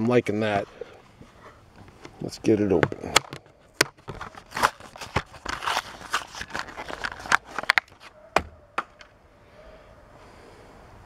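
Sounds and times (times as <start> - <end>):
blister pack being torn open: 3.2 - 8.2.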